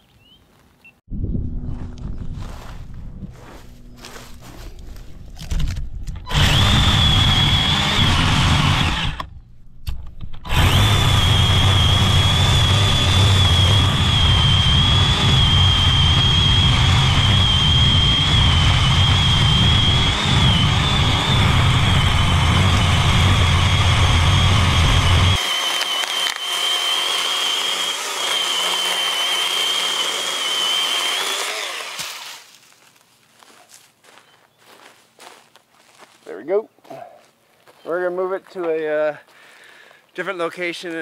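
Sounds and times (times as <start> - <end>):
deep low rumble: 1.1 - 7.1
electric chainsaw cutting branch: 1.8 - 9.4, 10.3 - 32.6.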